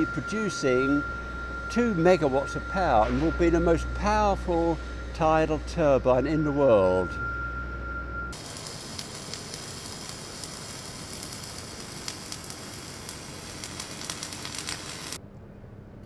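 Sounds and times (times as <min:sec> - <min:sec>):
background hum: 0:00.0 - 0:16.0
electric arc welding sizzle: 0:08.3 - 0:15.2
spatter popping: 0:08.4 - 0:15.2.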